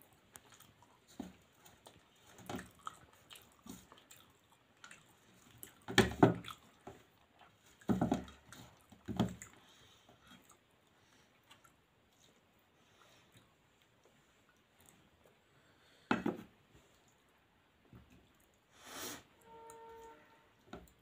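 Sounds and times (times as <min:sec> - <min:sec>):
hand mixing wet rice squishing: 0:00.0 - 0:15.5.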